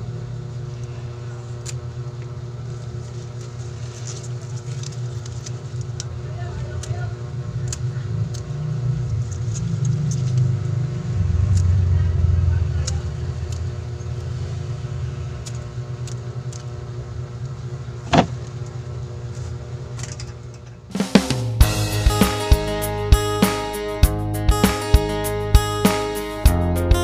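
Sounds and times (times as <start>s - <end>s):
low engine rumble: 0.0s - 20.8s.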